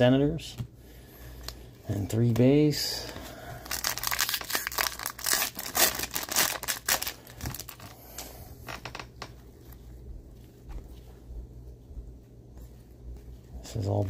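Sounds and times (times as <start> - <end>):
foil wrapper tearing and crinkling: 3.6 - 8.2
soft rustles: 7.5 - 14.0.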